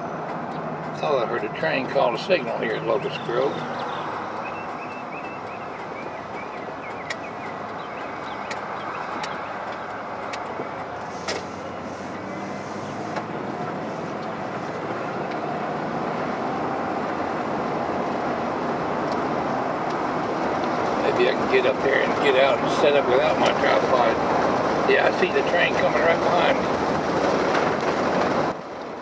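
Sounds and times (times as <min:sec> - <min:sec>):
car road noise: 0:00.0 - 0:29.0.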